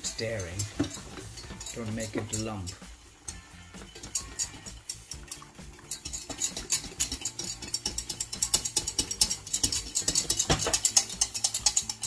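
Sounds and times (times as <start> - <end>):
whisk clicking against a pan: 0.0 - 12.0.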